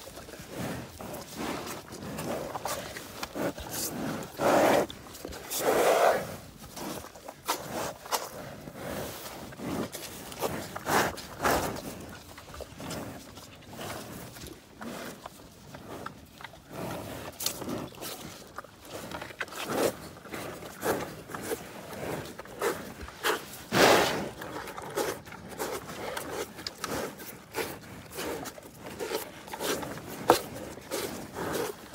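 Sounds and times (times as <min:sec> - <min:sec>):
cattle sniffing and snuffling: 0:00.0 - 0:31.9
cattle loud exhale: 0:21.9 - 0:24.4.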